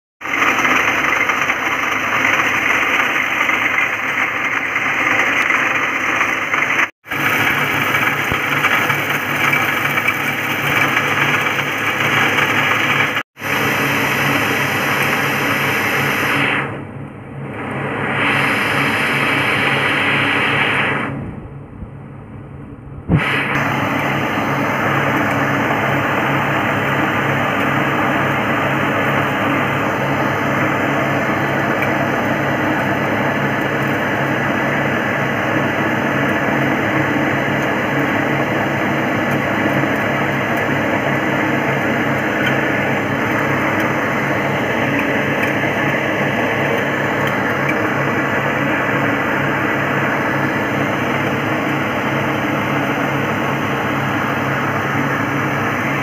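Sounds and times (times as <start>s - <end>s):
rice mill mechanical drone: 0.2s - 56.0s
click: 44.9s - 46.0s.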